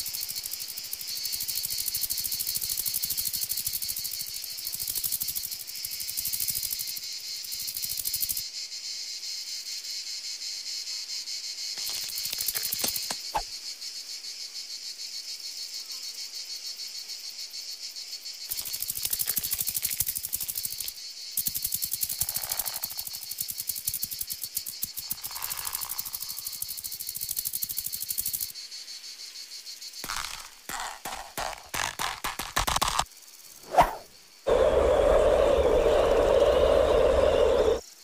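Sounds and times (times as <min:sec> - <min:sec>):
insects trilling: 0:00.0 - 0:38.0.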